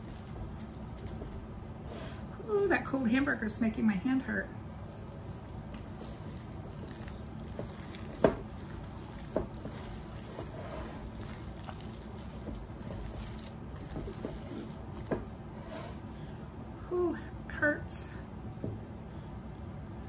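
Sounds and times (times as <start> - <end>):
wet squelching of kneaded meat: 4.7 - 15.6.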